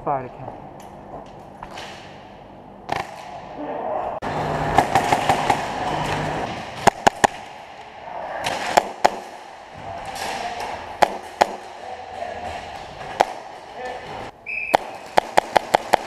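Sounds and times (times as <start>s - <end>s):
airsoft guns firing: 4.7s - 13.8s, 14.5s - 16.0s.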